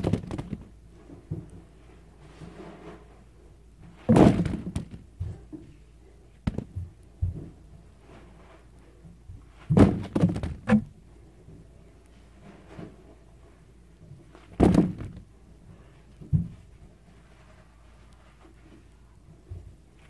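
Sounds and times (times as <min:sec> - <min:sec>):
thumps in cardboard box: 0:00.0 - 0:00.6, 0:04.1 - 0:05.4, 0:09.7 - 0:10.8, 0:14.6 - 0:15.2.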